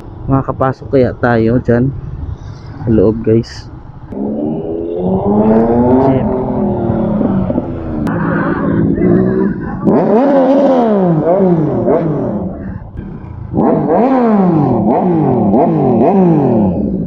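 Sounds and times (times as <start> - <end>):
motorcycle engine revving: 3.7 - 17.0.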